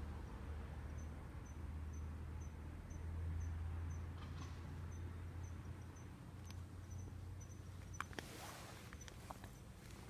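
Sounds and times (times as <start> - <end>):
insect chirping: 0.8 - 4.1, 4.8 - 8.2.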